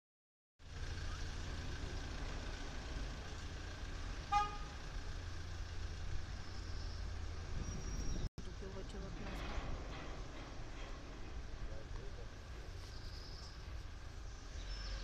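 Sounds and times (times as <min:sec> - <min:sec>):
traffic rumble: 0:00.6 - 0:15.0
vehicle horn toot: 0:04.3 - 0:04.8.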